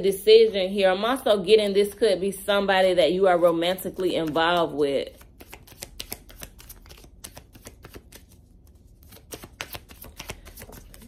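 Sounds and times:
cards being shuffled: 4.0s - 11.0s.

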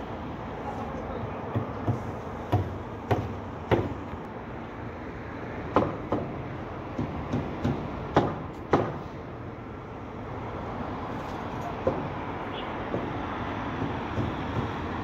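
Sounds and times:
sharp knocks: 1.5s - 4.0s, 7.0s - 9.0s, 13.8s - 14.8s.

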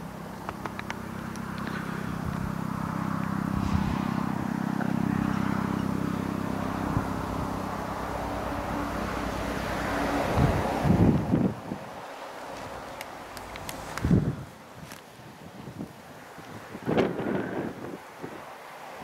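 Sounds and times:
helicopter drone: 0.0s - 12.0s.

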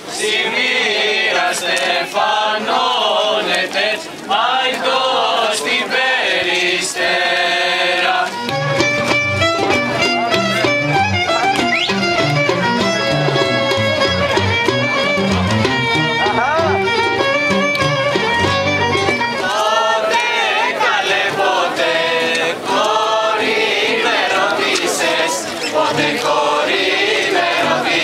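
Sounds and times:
group singing unaccompanied: 0.0s - 9.0s, 19.3s - 28.0s
instrumental folk music: 0.0s - 28.0s.

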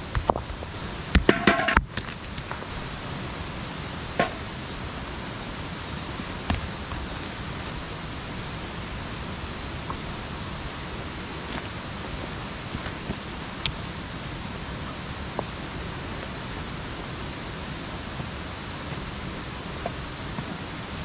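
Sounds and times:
rushing outdoor background: 0.0s - 21.0s
stones knocking on metal: 1.2s - 2.2s.

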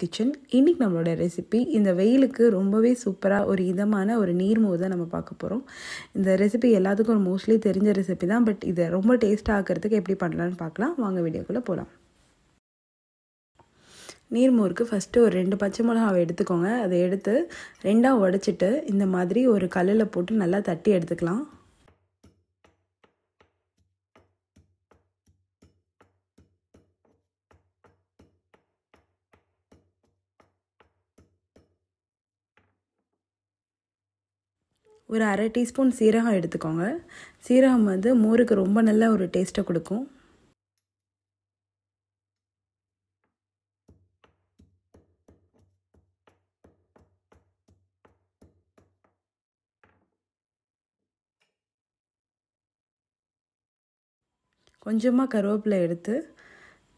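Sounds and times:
pestle pounding in stone mortar: 20.2s - 31.8s, 43.8s - 49.3s.

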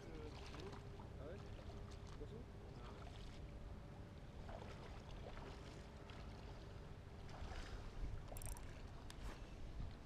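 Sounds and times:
water lapping at bank: 0.0s - 10.0s
wind rumble on microphone: 7.2s - 10.0s
small ticks: 8.3s - 9.2s.

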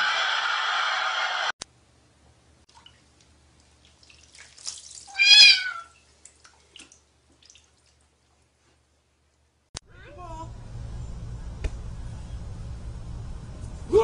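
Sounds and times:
water splashing: 2.7s - 8.5s
cat meowing: 5.1s - 6.0s.

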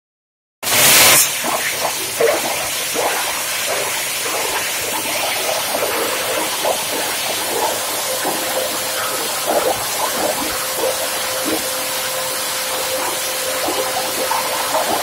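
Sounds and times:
plastic grinder running: 5.0s - 15.0s.

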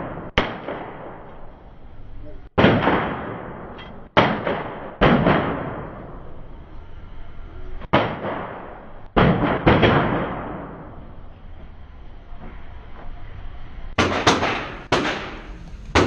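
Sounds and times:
handgun shots echoing: 14.0s - 16.0s.

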